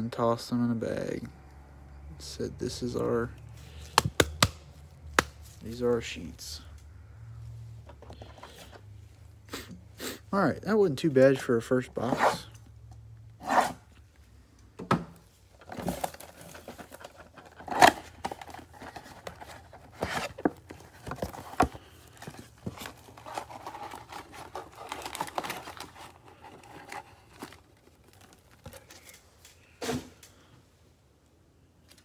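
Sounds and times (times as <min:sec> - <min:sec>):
cellophane crinkling and tearing: 0:15.6 - 0:29.6
foil card packs crackling: 0:15.6 - 0:29.7.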